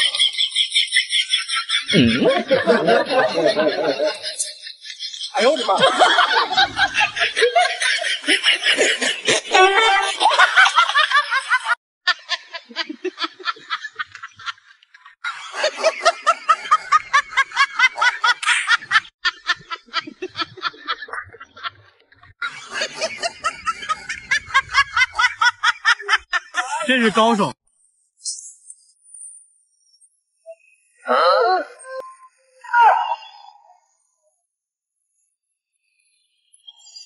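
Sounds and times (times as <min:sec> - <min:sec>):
people laughing in bursts: 0:00.0 - 0:04.7, 0:05.3 - 0:27.5.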